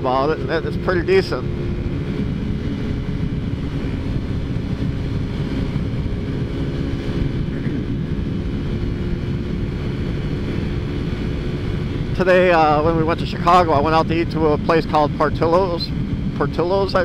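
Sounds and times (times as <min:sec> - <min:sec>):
scooter engine running: 0:00.0 - 0:13.5
wind on microphone: 0:00.0 - 0:17.0.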